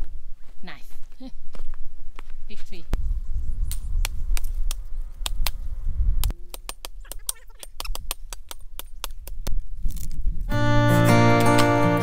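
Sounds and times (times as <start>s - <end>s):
wind buffeting microphone: 1.6s - 6.4s, 8.9s - 10.8s
hatchet chopping wood: 6.5s - 9.5s
acoustic guitar music: 10.5s - 12.0s.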